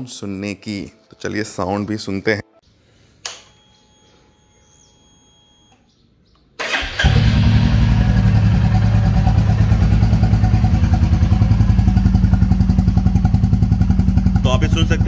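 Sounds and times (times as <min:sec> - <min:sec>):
motorcycle starter cranking: 0:06.6 - 0:12.0
motorcycle engine idling: 0:07.0 - 0:15.0.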